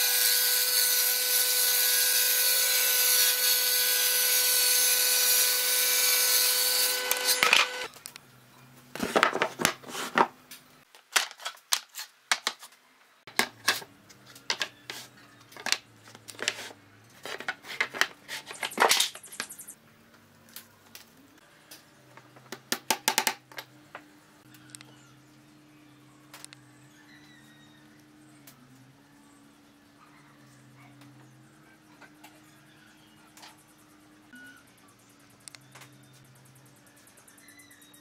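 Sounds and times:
jointer-planer whining: 0.0s - 7.9s.

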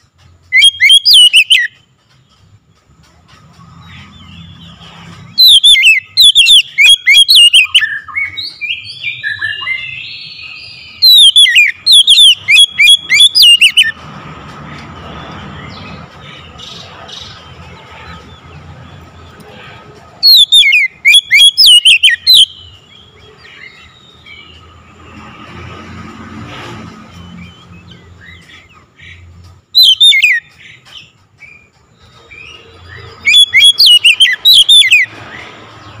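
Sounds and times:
bird whistling calls: 0.5s - 1.8s, 5.3s - 14.0s, 20.2s - 22.8s, 29.8s - 30.7s, 32.3s - 35.1s.

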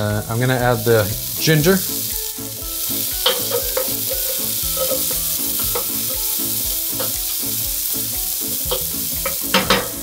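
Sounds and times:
vegetables sizzling in a frying pan: 0.0s - 10.0s
wooden spoon scraping a pan: 3.2s - 6.4s.

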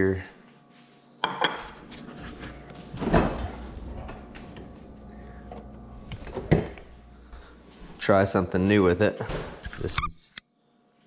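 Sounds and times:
refrigerator door opening: 2.8s - 6.9s
refrigerator door shutting: 2.9s - 4.8s, 5.5s - 6.9s.

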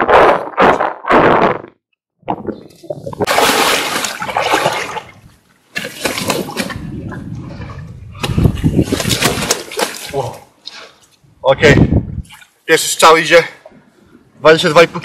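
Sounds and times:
fish thrashing and splashing water: 3.2s - 7.0s, 8.2s - 10.2s.

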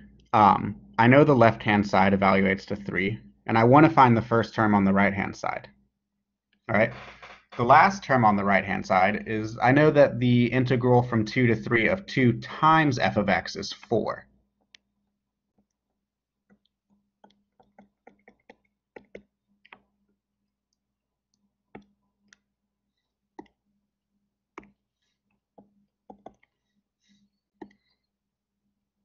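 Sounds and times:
faint steady hum: 0.0s - 5.9s
stylus tapping on tablet: 15.6s - 20.2s, 21.3s - 22.5s, 23.3s - 23.6s, 24.5s - 26.6s, 27.6s - 28.0s.

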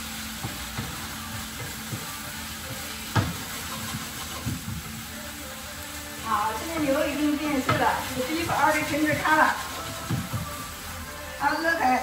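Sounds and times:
meat sizzling in a frying pan: 0.0s - 12.0s
spatula knocking against pan: 1.6s - 4.9s.

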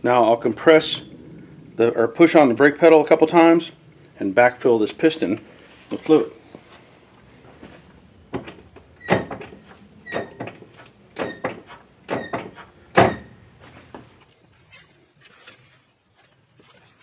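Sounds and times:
brake pedal knocking: 8.3s - 13.3s
brake pedal squeak: 8.9s - 13.4s.

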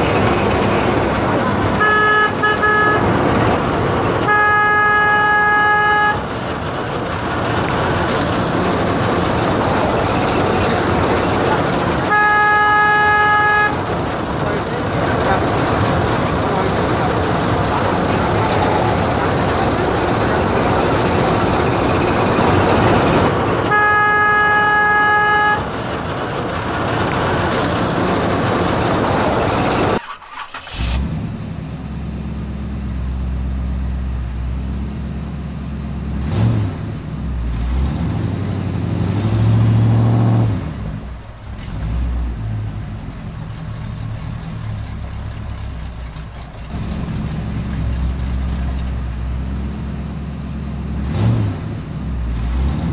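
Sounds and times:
truck engine rumble: 0.0s - 52.9s
truck horn blowing: 1.5s - 3.4s, 4.1s - 6.3s, 11.2s - 13.9s, 22.7s - 25.7s.

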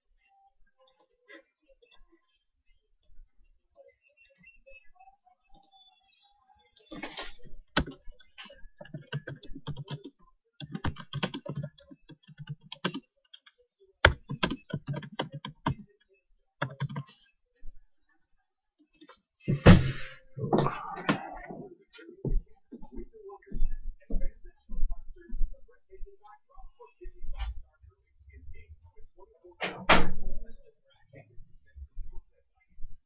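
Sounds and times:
laptop keyboard typing: 7.0s - 17.1s.

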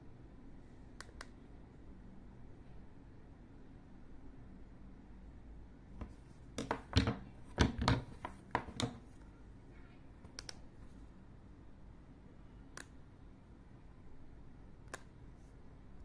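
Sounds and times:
plastic devices knocking and clicking: 6.6s - 9.0s.

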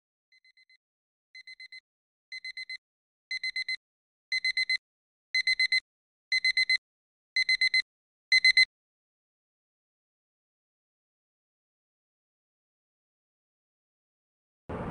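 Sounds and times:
alarm clock beeping: 1.4s - 4.8s, 5.4s - 6.8s, 7.4s - 8.7s.

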